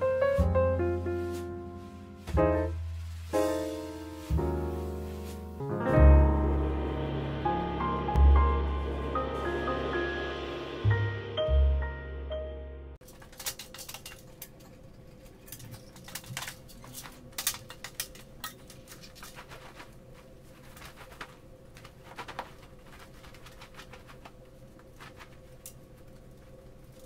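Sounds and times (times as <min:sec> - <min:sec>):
fabric rustling: 0:01.0 - 0:05.7, 0:18.9 - 0:27.0.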